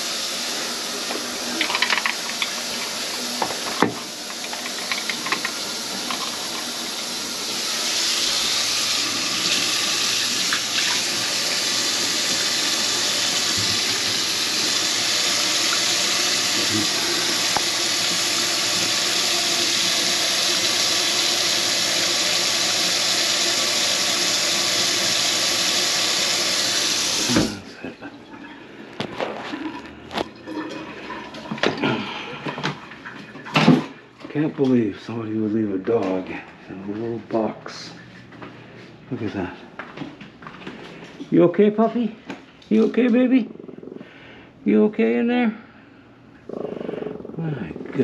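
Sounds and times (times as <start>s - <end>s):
faucet running into a sink: 0.0s - 27.6s
tap shut off: 17.4s - 19.0s.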